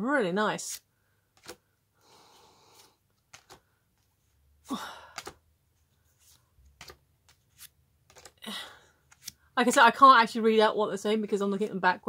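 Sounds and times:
paper cards clicking and sliding: 0.6 - 1.6, 2.7 - 4.1, 5.0 - 5.4, 6.0 - 8.4, 9.0 - 9.5
person breathing out: 2.0 - 3.0, 4.6 - 5.4.

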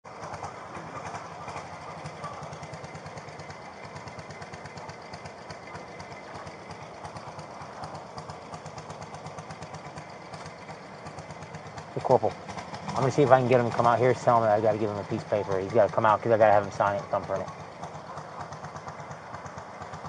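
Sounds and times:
engine running steadily: 0.0 - 20.0.

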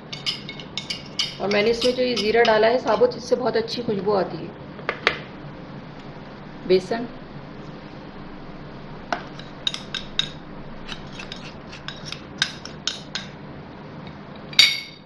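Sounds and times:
metal spoon clinking against bowls: 0.0 - 3.2, 9.3 - 13.4, 14.5 - 15.0.

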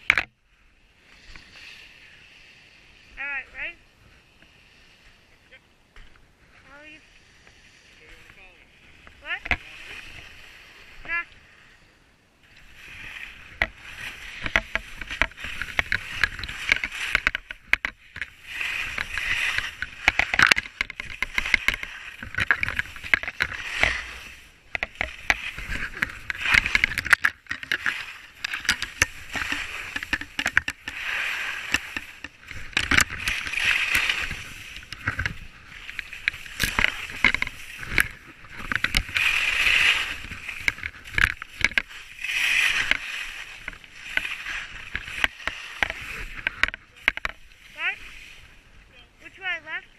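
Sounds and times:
sharp clicks and knocks: 0.0 - 0.4, 13.5 - 47.5
skis scraping on snow: 0.8 - 49.8.

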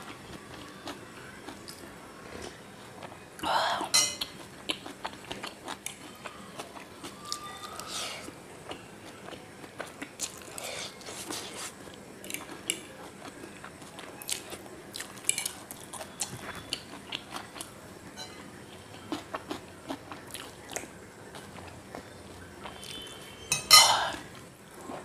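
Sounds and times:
person chewing noodles: 0.0 - 3.2, 3.8 - 17.7, 18.5 - 23.3.

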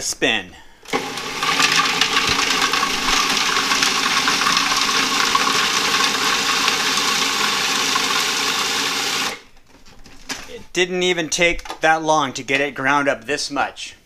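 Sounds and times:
food processor running: 0.9 - 9.4.

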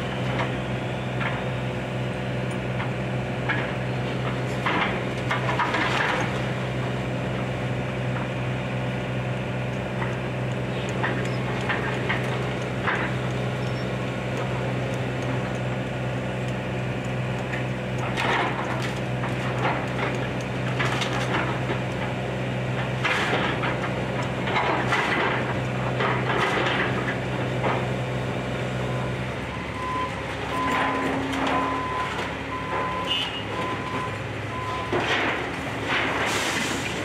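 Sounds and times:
diesel engine running: 0.0 - 37.0
splintering wood cracks and crashes: 2.8 - 6.8, 10.9 - 13.3, 17.5 - 28.0, 34.8 - 37.0
backup alarm beeping: 13.6 - 14.0, 29.5 - 35.0.

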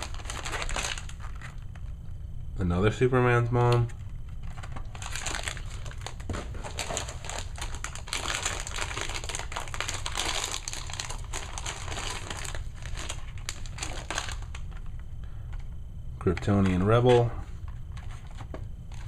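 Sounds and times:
plastic packaging crinkling: 0.0 - 2.0, 4.4 - 15.0.

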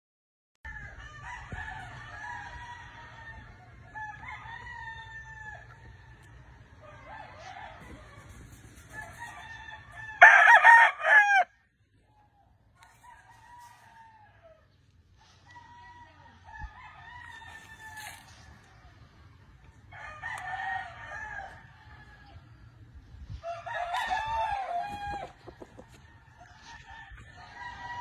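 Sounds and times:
distant roosters crowing: 0.7 - 11.6, 12.8 - 28.0
rooster crowing close: 8.9 - 11.5.

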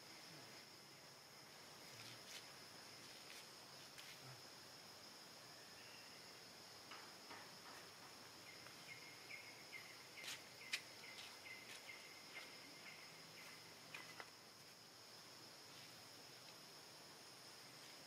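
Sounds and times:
high insect drone: 0.0 - 18.0
faint chirps and clicks: 9.7 - 14.3.

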